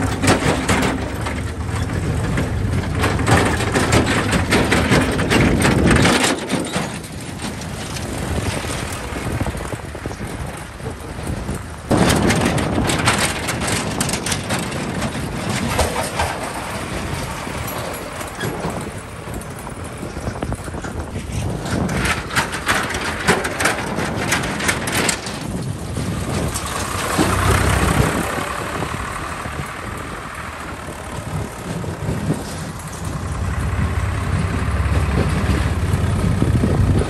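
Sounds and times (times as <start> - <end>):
tractor engines running: 0.0 - 37.0
trolleys clattering and rattling: 0.0 - 37.0.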